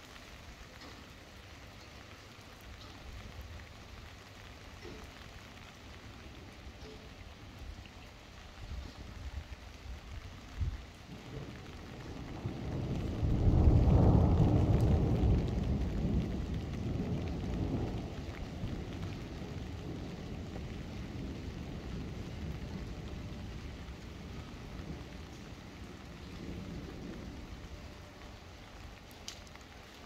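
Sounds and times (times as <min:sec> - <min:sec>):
steady rain on street: 0:00.0 - 0:30.0
thunder rumbling: 0:10.4 - 0:29.9.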